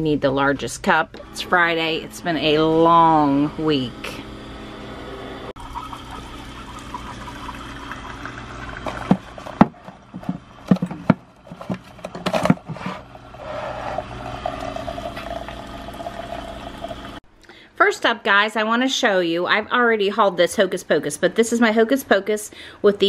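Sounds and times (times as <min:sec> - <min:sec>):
coffee maker brewing: 0:00.8 - 0:17.2
coffee pouring into mug: 0:05.6 - 0:09.7, 0:13.2 - 0:17.2.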